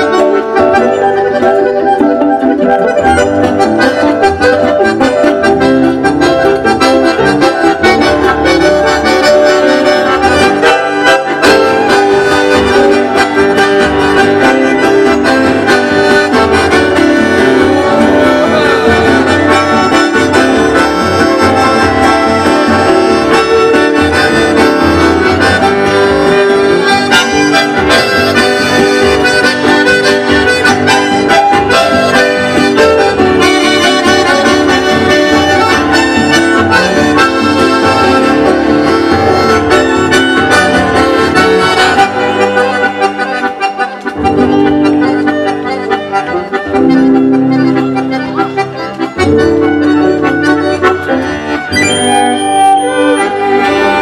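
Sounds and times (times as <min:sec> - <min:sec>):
accordion melody: 0:00.0 - 0:54.0
acoustic guitars: 0:00.0 - 0:54.0
violin: 0:47.3 - 0:54.0.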